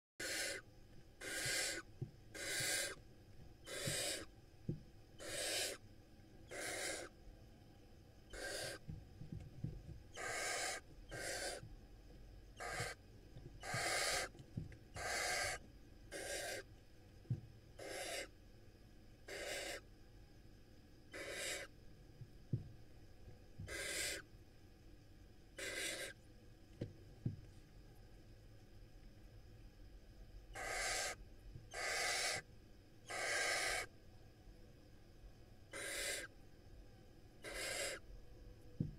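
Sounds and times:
owl chicks hissing: 0.2 - 3.0, 3.6 - 4.3, 5.2 - 5.8, 6.4 - 7.1, 8.3 - 8.9, 10.1 - 11.6, 12.6 - 13.0, 13.6 - 16.7, 17.8 - 18.4, 19.2 - 19.9, 21.1 - 21.7, 23.7 - 24.2, 25.6 - 26.2, 30.5 - 33.9, 35.7 - 36.3, 37.4 - 38.0.

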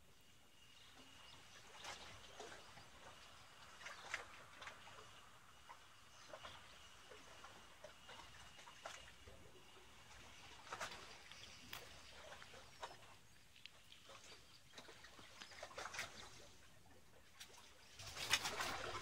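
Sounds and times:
faint clicks and ticks: 10.1 - 16.3.

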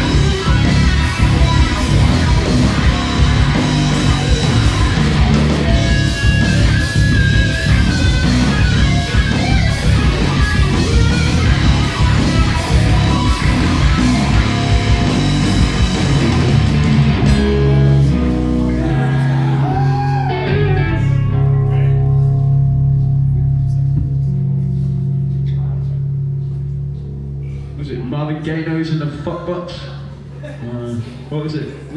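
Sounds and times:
rock drums: 0.0 - 27.8
distorted electric guitars: 0.0 - 30.4.

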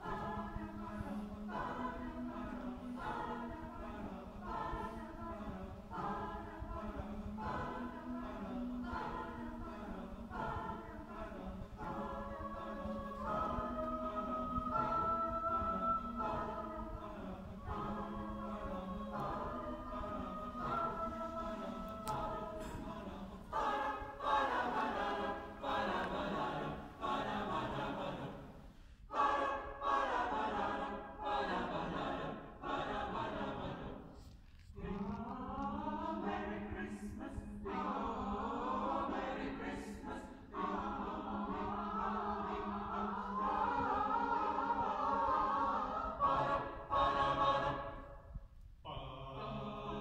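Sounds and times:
choir singing: 0.0 - 50.0.

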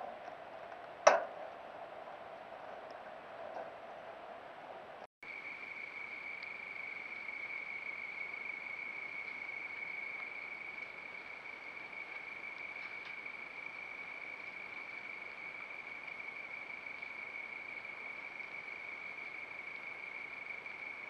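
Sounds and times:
insect trill: 5.2 - 21.0.

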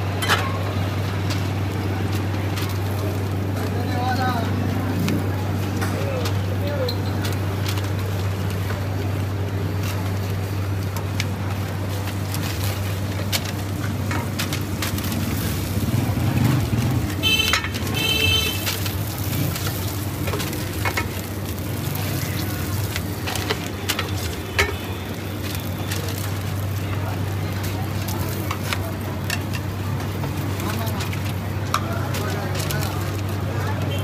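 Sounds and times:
constant low hum: 4.8 - 16.0
food sizzling on griddle: 11.5 - 33.7.

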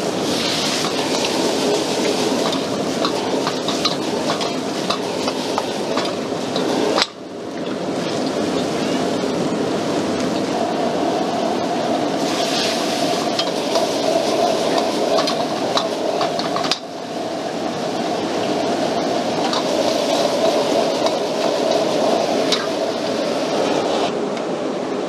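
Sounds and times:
vegetables sizzling in a wok: 0.0 - 7.1, 12.2 - 17.0, 19.3 - 23.1
gas wok burner roaring: 0.0 - 25.0.

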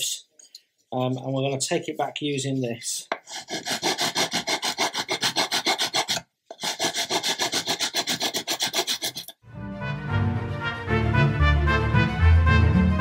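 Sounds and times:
sanding strokes on wood: 3.3 - 9.3
music: 9.4 - 13.0.

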